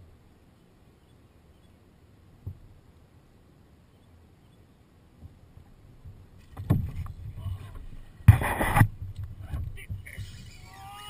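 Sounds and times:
sharp knocks: 6.1s - 7.1s, 8.2s - 10.4s.

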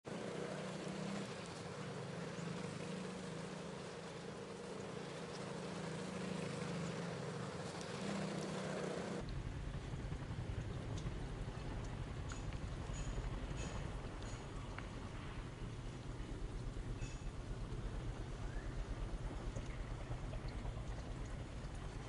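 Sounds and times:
low mechanical hum: 0.1s - 22.0s.

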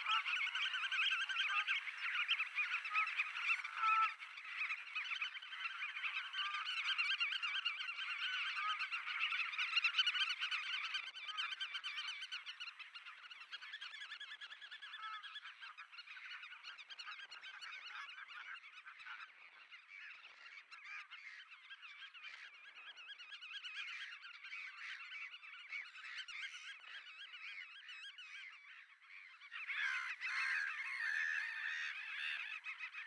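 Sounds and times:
godwits calling: 0.0s - 12.4s, 23.6s - 33.0s.

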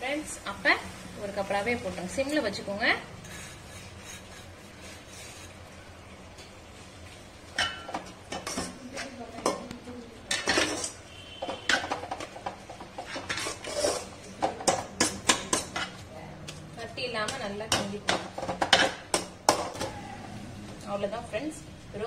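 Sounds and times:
metal spoon scraping a pot: 3.2s - 5.6s, 10.3s - 16.0s.

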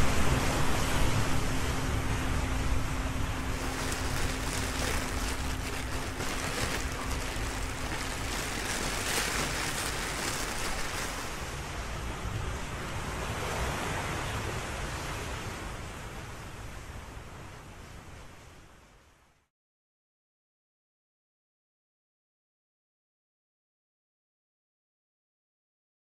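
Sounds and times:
ocean waves washing: 3.3s - 13.4s.

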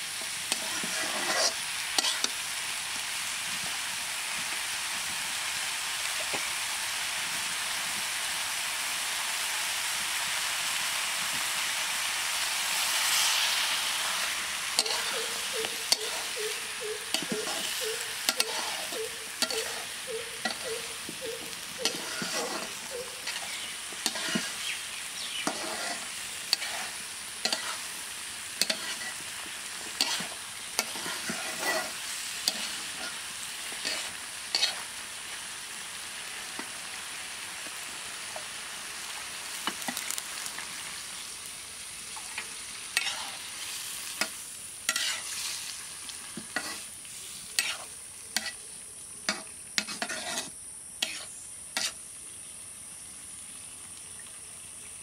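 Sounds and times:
food sizzling in a wok: 0.0s - 55.0s
metal spatula scraping pan: 0.5s - 2.4s, 14.7s - 24.6s, 25.4s - 27.9s, 28.6s - 29.2s, 29.9s - 34.9s, 43.0s - 43.4s, 44.2s - 45.6s, 46.4s - 46.9s, 47.6s - 48.6s, 49.3s - 52.0s.

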